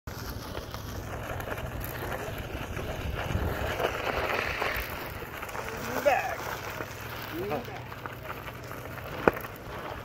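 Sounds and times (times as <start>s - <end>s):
chair wheels rolling over gravel: 0.1s - 10.0s
wind buffeting microphone: 1.8s - 5.6s.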